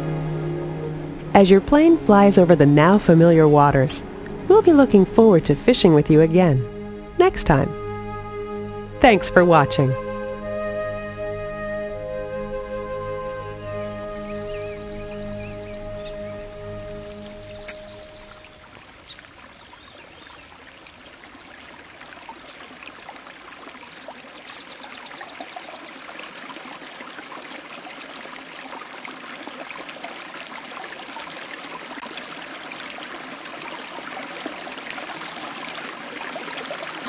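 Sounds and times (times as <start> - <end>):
running water rushing: 0.0 - 37.0.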